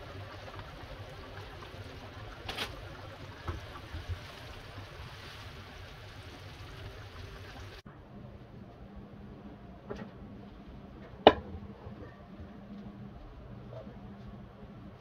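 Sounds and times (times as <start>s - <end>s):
sauce bubbling in a pan: 0.0s - 7.9s.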